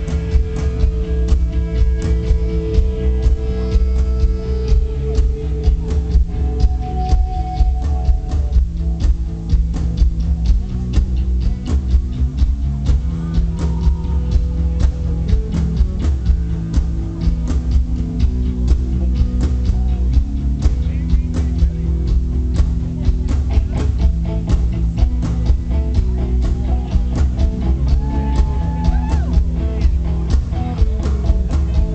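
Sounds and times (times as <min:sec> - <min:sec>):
drum kit steady beat: 0:00.0 - 0:31.9
live rock band playing: 0:00.0 - 0:31.9.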